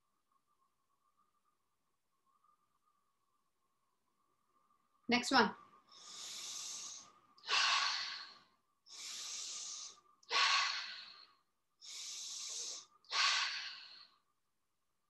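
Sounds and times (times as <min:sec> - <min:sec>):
person breathing deeply: 0:05.9 - 0:14.2.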